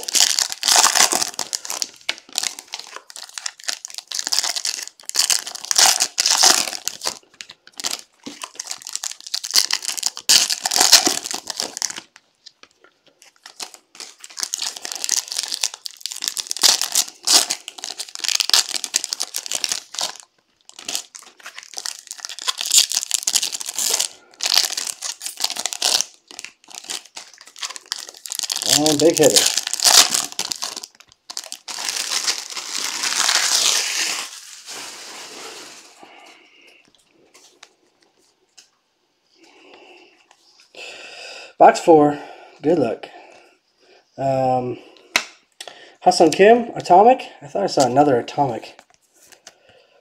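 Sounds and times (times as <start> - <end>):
foil wrappers crinkling and tearing: 0.0 - 36.1.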